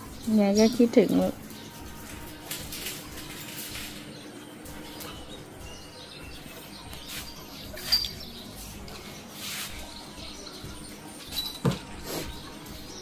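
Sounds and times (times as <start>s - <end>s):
dogs scuffing on tiled floor: 1.8s - 5.4s, 6.9s - 10.3s.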